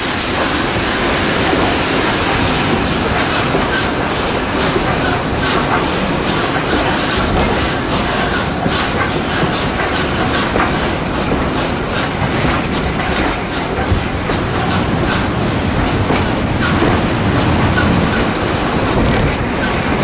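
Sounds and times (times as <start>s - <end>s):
steam locomotive sharp beat: 0.0s - 20.0s
steam train rumbling: 0.0s - 20.0s.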